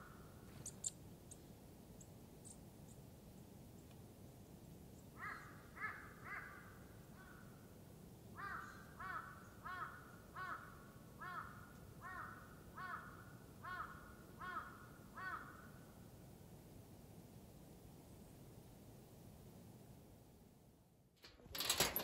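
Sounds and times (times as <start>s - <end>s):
crow cawing: 5.2s - 7.5s, 8.4s - 15.8s.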